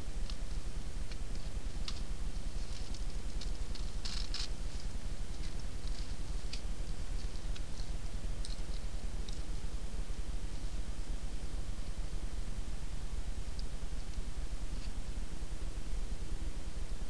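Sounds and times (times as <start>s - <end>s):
steady low rumble: 0.0s - 17.0s
faint clicks and scratches: 0.1s - 10.8s, 13.5s - 15.2s.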